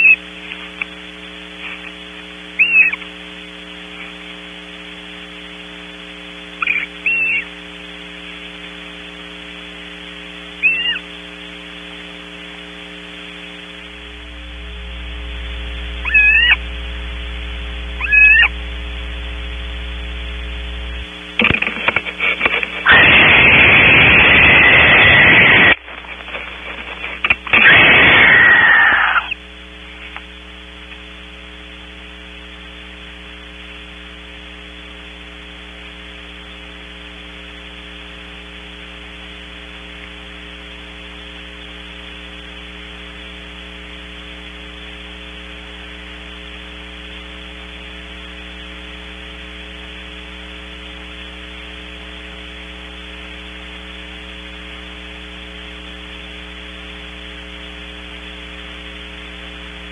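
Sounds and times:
electrical mains hum with hiss: 0.0 - 59.9.

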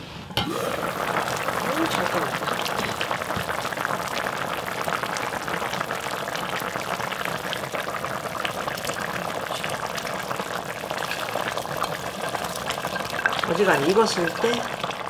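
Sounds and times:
stew bubbling in a pot: 0.3 - 15.0.

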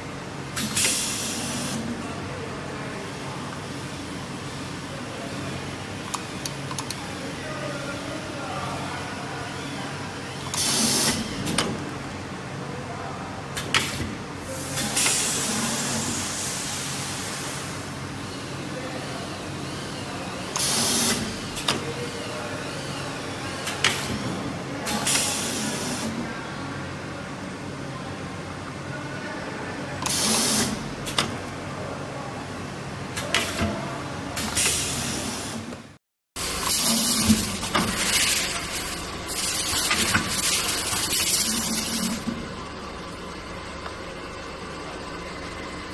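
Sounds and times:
steady machine hum: 25.5 - 45.9
machine humming: 36.4 - 45.9.

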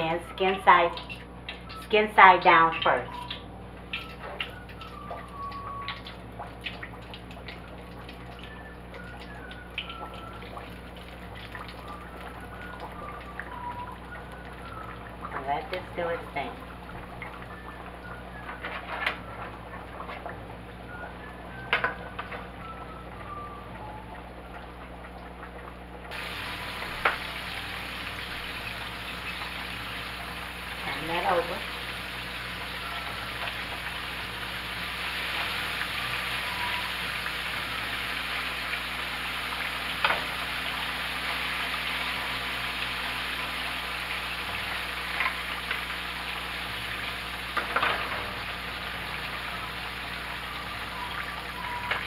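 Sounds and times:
oil crackling and popping: 3.2 - 15.5, 24.6 - 52.0
chicken sizzling in hot oil: 3.2 - 23.1, 26.0 - 52.0.

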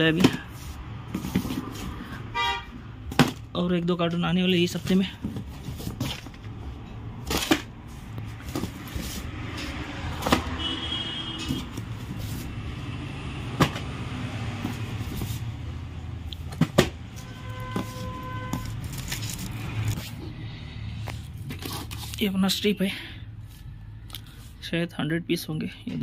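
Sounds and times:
cardboard cartons being handled: 0.0 - 2.2, 4.5 - 10.5, 11.4 - 12.6, 14.6 - 15.6, 16.4 - 20.2, 21.1 - 22.3.

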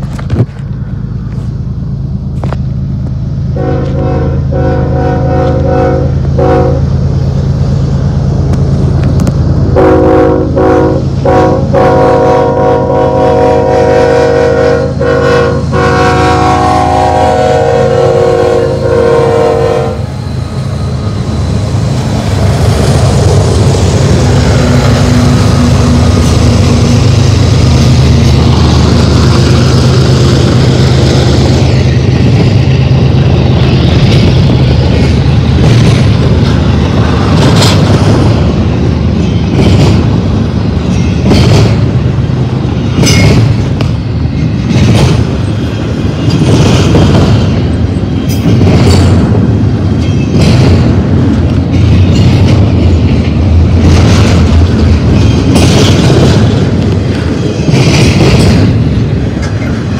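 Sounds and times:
diesel locomotive engine drone: 0.0 - 59.9
train cars rumbling: 0.0 - 59.9
wheels clacking on rails: 0.0 - 59.9.

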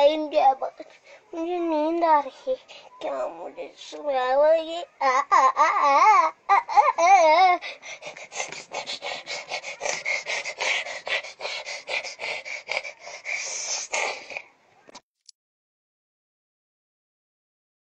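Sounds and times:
breathy rasping huffs: 0.9 - 1.4, 2.3 - 3.0, 6.7 - 14.5.

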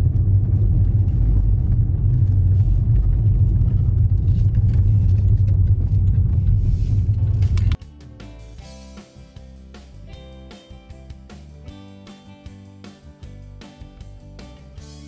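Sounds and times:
car engine and road noise: 0.0 - 7.8.

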